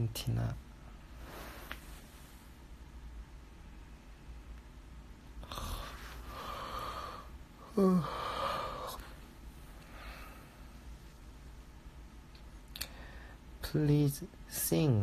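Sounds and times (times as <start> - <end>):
man sighing: 5.4 - 9.1
man breathing close to microphone: 5.4 - 10.9, 12.8 - 13.5.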